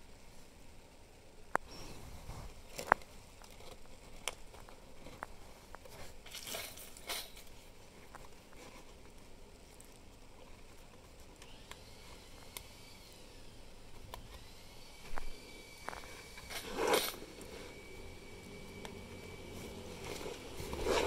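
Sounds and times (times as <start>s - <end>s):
canvas fabric rustling: 19.3s - 21.0s.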